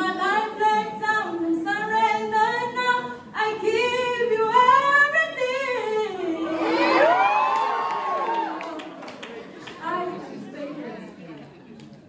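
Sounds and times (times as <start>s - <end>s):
woman singing unaccompanied: 0.0s - 6.9s.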